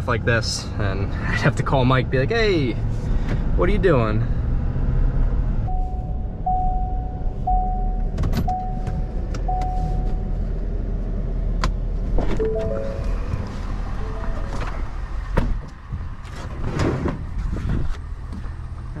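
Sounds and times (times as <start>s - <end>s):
stepped door chime: 12.4s - 15.3s
warning chime beeping: 12.4s - 15.3s.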